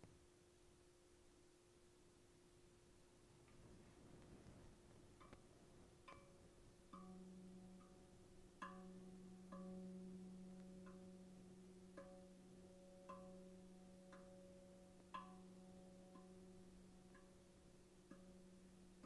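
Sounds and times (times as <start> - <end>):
steel tongue drum notes: 5.1 - 19.0.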